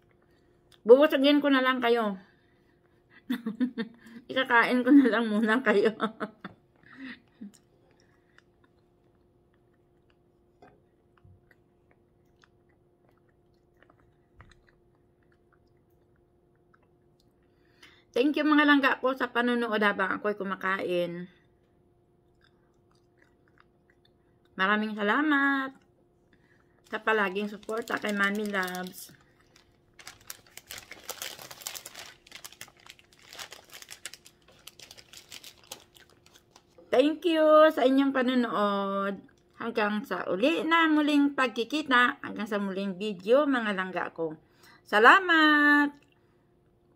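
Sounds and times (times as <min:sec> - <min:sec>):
quiet chewing: 0:00.0 - 0:00.8, 0:06.7 - 0:18.0, 0:21.4 - 0:24.6, 0:25.7 - 0:36.9, 0:39.2 - 0:39.6
faint steady hum: 0:00.0 - 0:46.9
plastic sleeve crinkling: 0:26.8 - 0:36.8.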